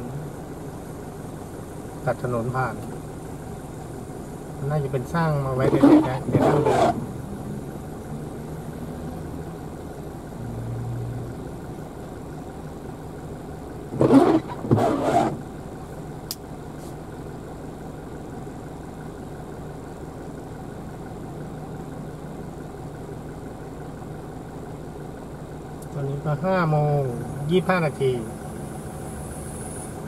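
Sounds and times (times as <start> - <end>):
car engine hum: 0.0 - 30.0
road noise inside car: 0.0 - 30.0.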